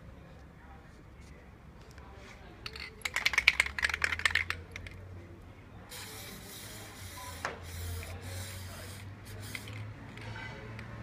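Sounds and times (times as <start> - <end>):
aerosol can rattling: 2.7 - 4.9, 5.9 - 9.9
aerosol spray hissing: 5.9 - 9.8.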